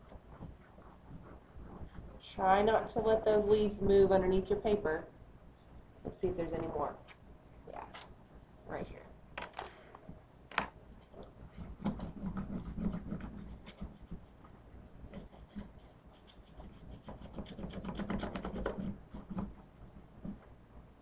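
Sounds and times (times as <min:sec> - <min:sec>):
crayon rubbing on paper: 0:00.0 - 0:02.8, 0:11.0 - 0:20.4.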